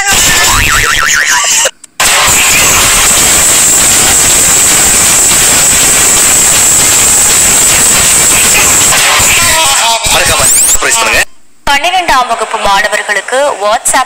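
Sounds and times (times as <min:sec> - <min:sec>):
loud rushing noise with hiss: 0:02.0 - 0:10.3.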